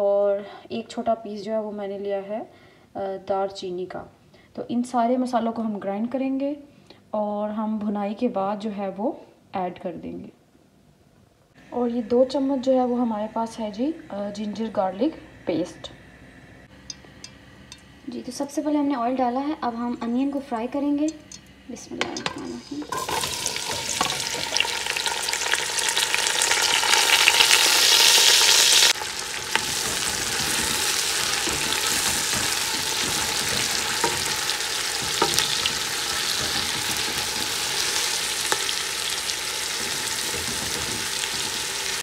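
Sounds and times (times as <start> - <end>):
onions sizzling in hot oil: 21.0 - 42.0
spatula stirring onions: 21.0 - 42.0.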